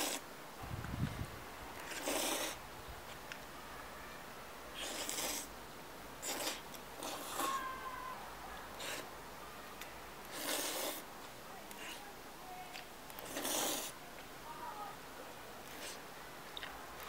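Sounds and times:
slurping noodles: 0.0s - 0.2s, 1.8s - 2.6s, 4.8s - 5.5s, 6.2s - 7.5s, 8.8s - 9.1s, 10.3s - 11.0s, 13.2s - 14.0s, 15.7s - 16.0s.

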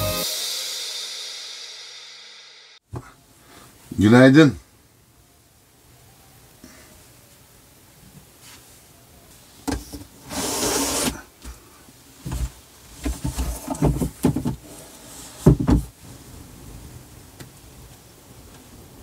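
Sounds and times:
short sliding rasp: 10.3s - 11.2s
dull knocks and bumps: 12.2s - 14.6s, 15.4s - 15.9s.

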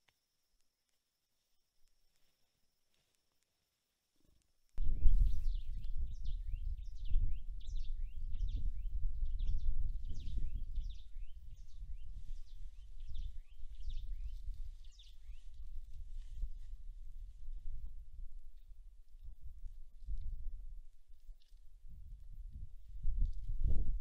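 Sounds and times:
small birds chirping: 4.3s - 16.7s.

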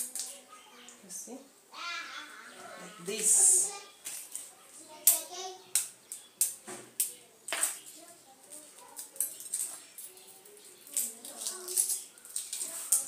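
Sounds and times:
egg shell cracking and peeling: 10.8s - 13.0s.

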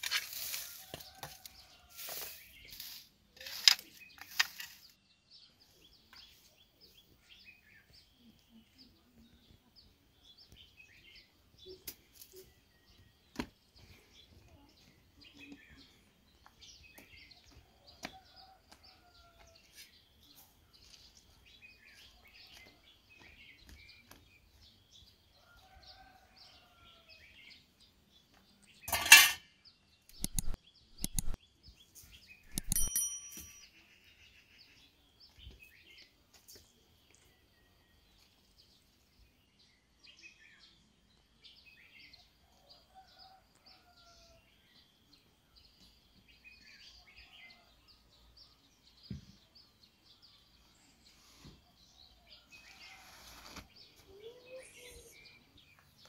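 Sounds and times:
small birds chirping: 0.0s - 56.0s
metal dish clanking: 28.9s - 29.4s.

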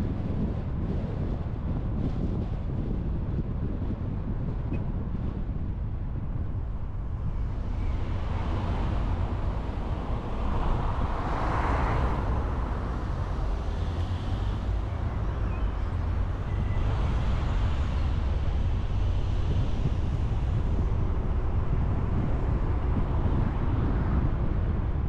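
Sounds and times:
car road and engine rumble: 0.0s - 25.0s.

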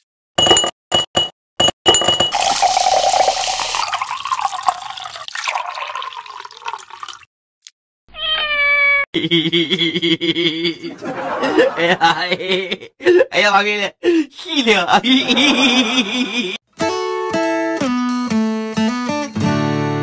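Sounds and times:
ice cubes clinking in a glass: 2.3s - 7.2s
liquid pouring into a glass: 2.3s - 7.3s
cat meowing: 8.1s - 9.0s.

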